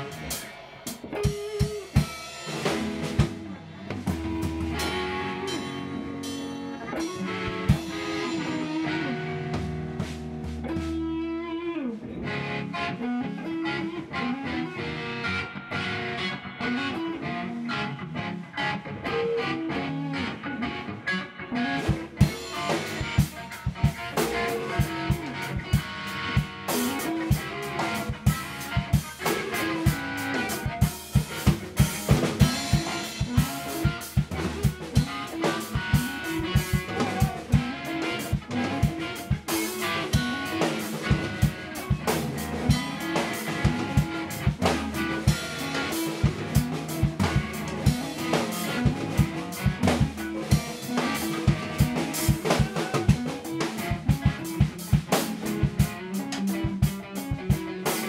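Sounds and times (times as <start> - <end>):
drum kit beat: 0.0 - 11.5, 21.8 - 58.0
electric guitars: 0.0 - 58.0
guitar notes sliding down: 0.0 - 58.0.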